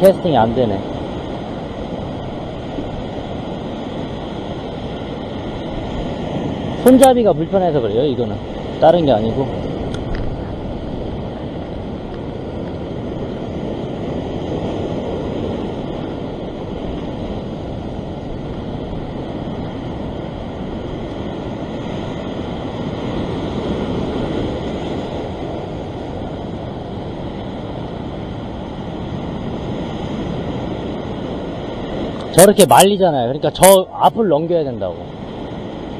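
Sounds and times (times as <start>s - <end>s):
surf washing over rocks: 0.0s - 35.9s
wind on microphone: 0.0s - 35.9s.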